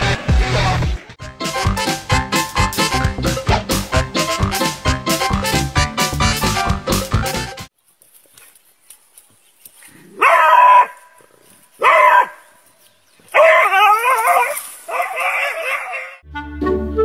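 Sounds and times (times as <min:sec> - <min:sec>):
dog barking: 0:10.1 - 0:11.2, 0:11.8 - 0:12.6, 0:13.3 - 0:16.2
dog howling barks: 0:10.1 - 0:11.2, 0:11.8 - 0:12.5, 0:13.3 - 0:16.2.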